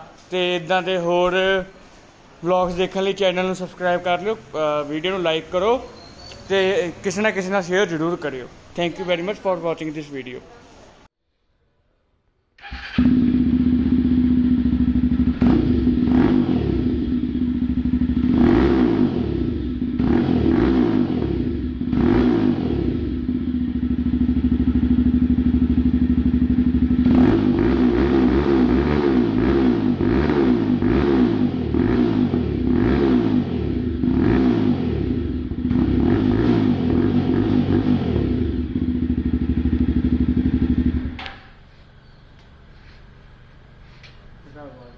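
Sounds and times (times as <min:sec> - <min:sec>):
motorcycle engine revving: 0:12.6 - 0:41.6.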